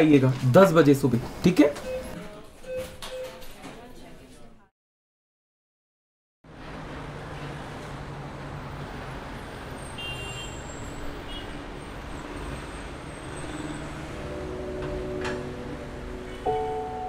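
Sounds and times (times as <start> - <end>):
road traffic rumble: 6.5 - 17.0
soft music notes: 14.2 - 17.0.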